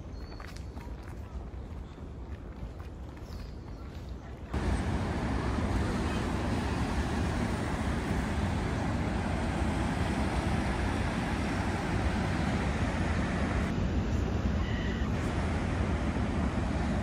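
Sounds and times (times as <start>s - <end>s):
ocean surf breaking: 4.6s - 13.8s.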